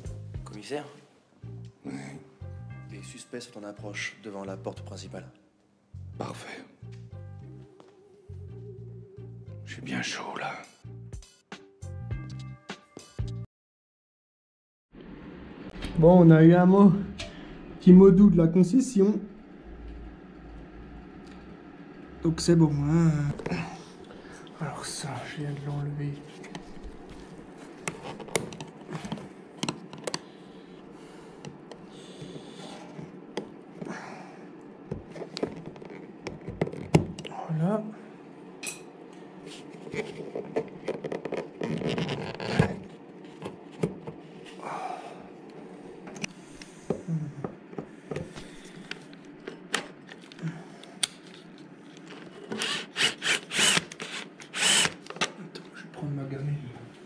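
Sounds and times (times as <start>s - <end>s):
cordless screwdriver whirring: 52.5s - 55.1s.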